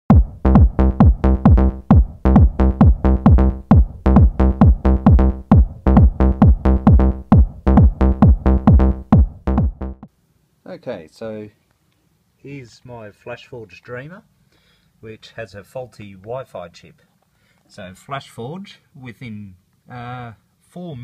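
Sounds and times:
electronic dance music: 0.1s - 10.1s.

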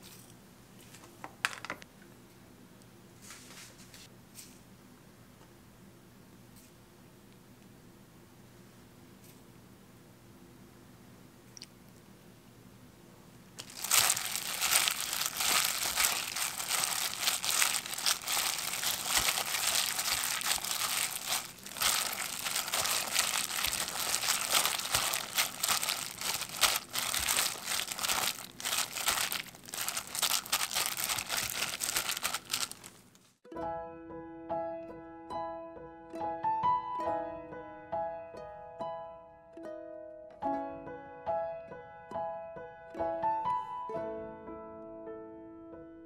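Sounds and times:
plastic glove crinkling and rustling: 13.6s - 33.4s.

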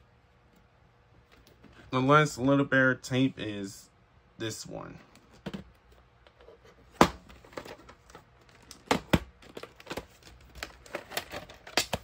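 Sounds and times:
plastic case clicks and knocks: 7.0s - 12.0s
plastic case snapping: 7.0s - 12.0s.

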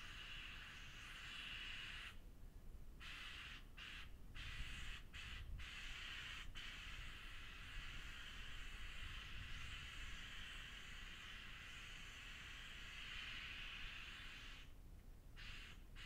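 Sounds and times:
spray gun hissing: 3.1s - 14.7s.

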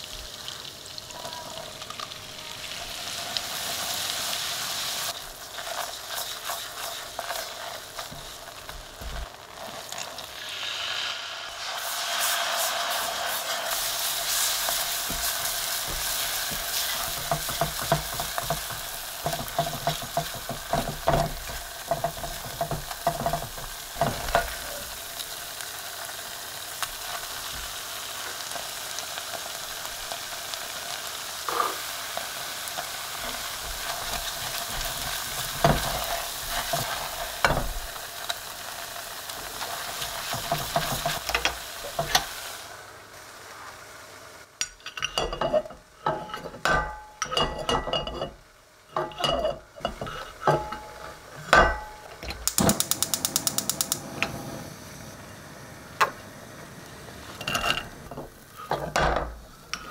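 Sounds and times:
butter sizzling: 0.0s - 59.9s
spatula scraping a saucepan: 49.0s - 51.5s.

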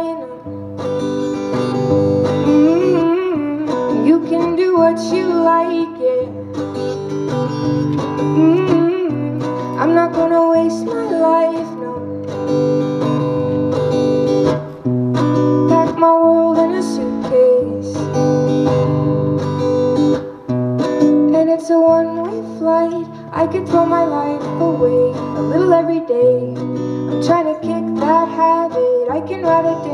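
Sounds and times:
woman singing: 0.0s - 0.6s, 1.5s - 12.4s, 15.6s - 19.2s, 21.0s - 29.9s
acoustic guitar strumming: 0.0s - 29.9s.

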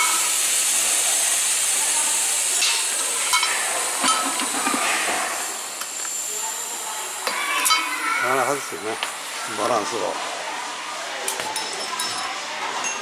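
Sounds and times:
compressed air hissing: 0.0s - 9.4s.

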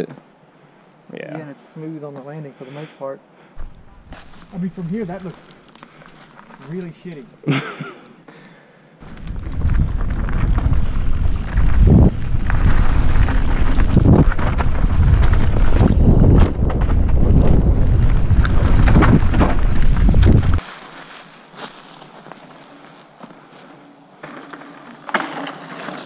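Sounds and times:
bike rattling over bumps: 9.0s - 20.6s, 24.2s - 26.0s
wind buffeting microphone: 9.0s - 20.6s.

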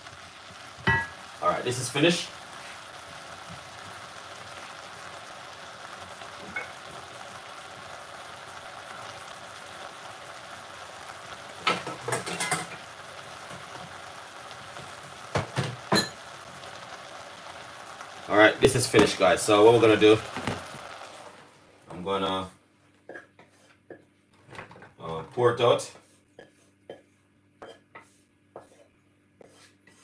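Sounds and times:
vegetables sizzling in a pot: 0.0s - 24.0s.

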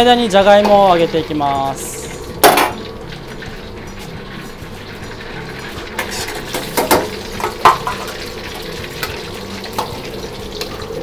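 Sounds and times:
food going into hot oil: 0.0s - 11.0s
gas burner hum: 0.0s - 11.0s.

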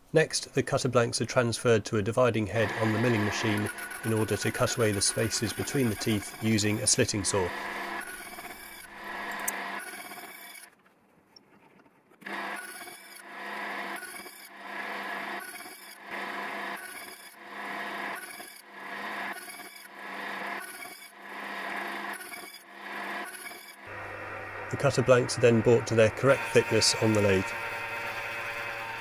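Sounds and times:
motor hum: 2.5s - 10.7s, 12.2s - 29.0s
saw cutting metal: 2.5s - 10.7s, 12.2s - 29.0s.

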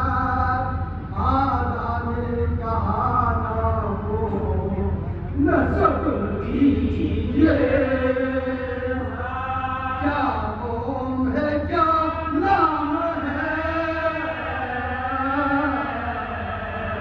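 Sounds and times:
men chanting: 5.4s - 17.0s.

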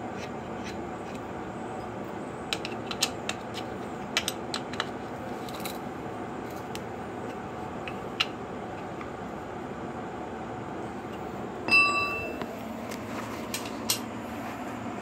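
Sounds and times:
steady background hum: 0.0s - 15.0s
tool clicking and tapping on metal: 2.5s - 5.0s.

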